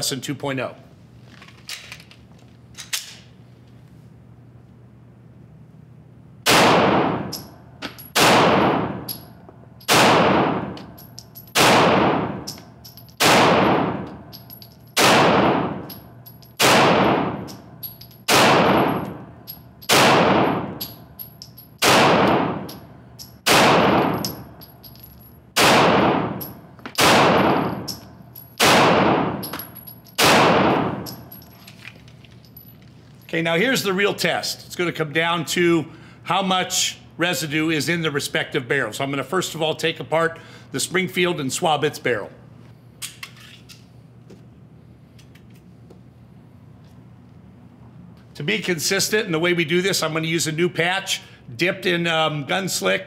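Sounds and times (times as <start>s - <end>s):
pistol shots echoing indoors: 6.4s - 14.4s, 15.0s - 21.1s, 21.8s - 24.6s, 25.6s - 31.5s.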